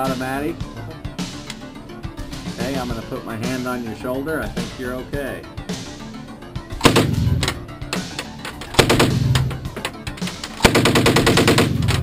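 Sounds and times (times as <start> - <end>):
submachine gun automatic bursts: 8.7 - 9.2, 10.5 - 12.0.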